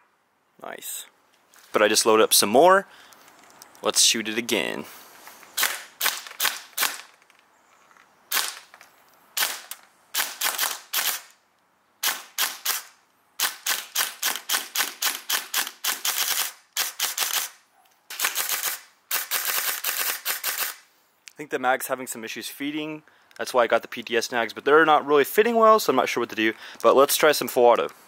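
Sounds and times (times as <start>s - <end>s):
airsoft gun firing single shots: 5.6s - 7.2s, 8.3s - 8.7s, 9.4s - 11.4s, 12.0s - 20.8s.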